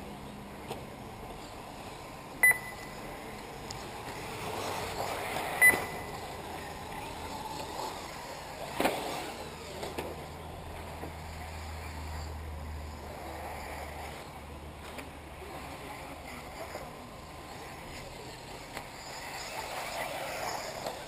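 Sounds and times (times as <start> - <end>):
radio-controlled cars running: 0.0 - 21.0
short high beeps: 2.4 - 3.0, 5.6 - 6.1.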